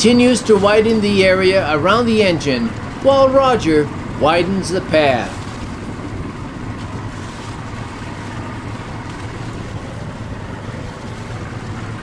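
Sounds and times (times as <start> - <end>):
distant outboard motors droning: 0.0 - 12.0
wind on microphone: 3.9 - 12.0.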